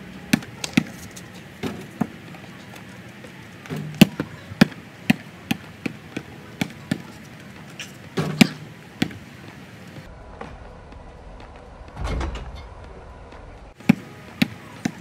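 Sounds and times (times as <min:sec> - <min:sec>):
basketball bouncing on pavement: 0:00.2 - 0:09.6, 0:13.8 - 0:15.0.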